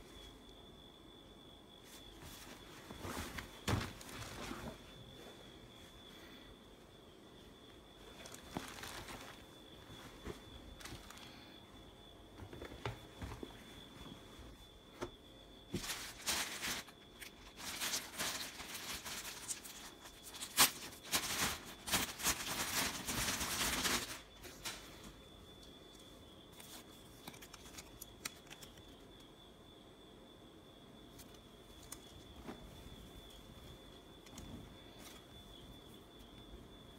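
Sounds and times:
clothes rustling and crinkling: 0:01.8 - 0:06.3, 0:07.6 - 0:11.7, 0:12.3 - 0:15.1, 0:15.7 - 0:25.2, 0:31.7 - 0:36.4.

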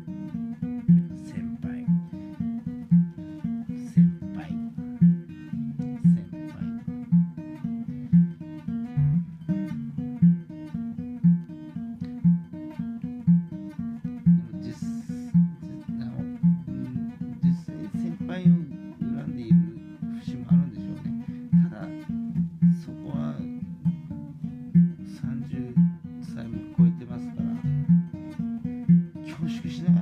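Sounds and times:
acoustic guitar piece: 0:00.0 - 0:30.0.

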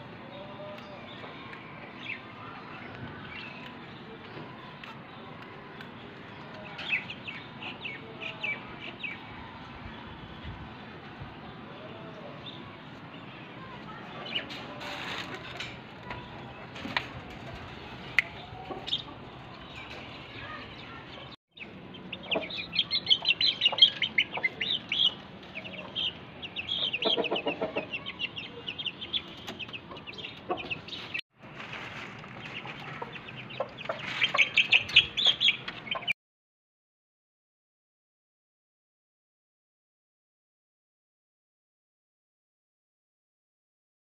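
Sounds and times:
chickens clucking: 0:13.6 - 0:36.2.

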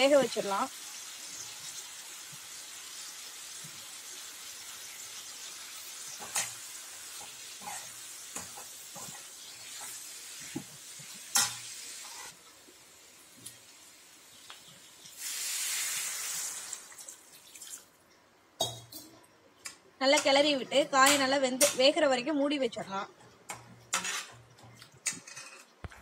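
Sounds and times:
vegetables sizzling in oil: 0:00.0 - 0:17.3
metal spatula scraping pan: 0:07.2 - 0:10.0, 0:23.9 - 0:24.4.

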